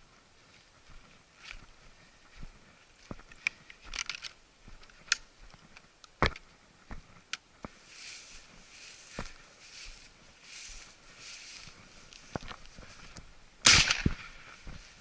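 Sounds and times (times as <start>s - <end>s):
footsteps on stony ground: 0.0s - 13.4s, 14.0s - 15.0s
footsteps swishing through grass: 7.7s - 15.0s.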